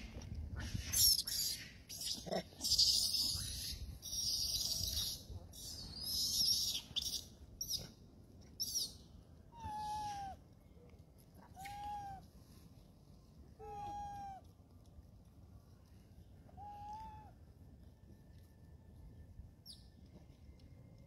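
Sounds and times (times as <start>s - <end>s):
monkey squeaky cries: 0.9s - 7.8s
monkey coo calls: 9.5s - 10.4s, 11.6s - 12.2s, 13.6s - 14.4s.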